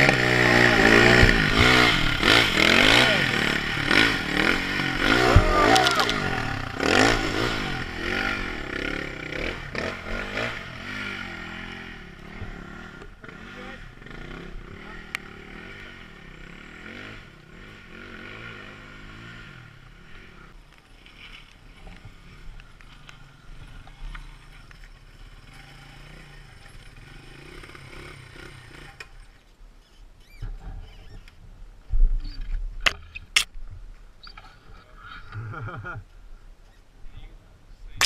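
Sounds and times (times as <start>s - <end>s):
dirt bike engine revving: 0.0s - 20.6s, 23.2s - 29.3s.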